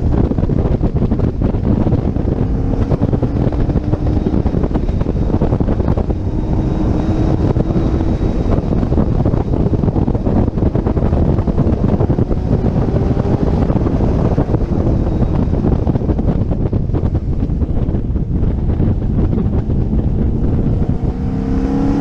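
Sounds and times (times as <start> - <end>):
car engine running: 0.0 - 22.0
wind buffeting microphone: 0.0 - 22.0.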